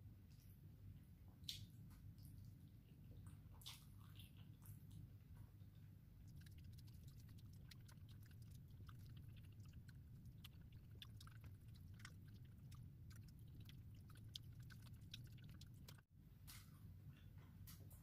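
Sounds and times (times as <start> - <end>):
low steady hum: 0.0 - 18.0
chewing and wet mouth clicks: 1.4 - 5.2, 6.2 - 16.0.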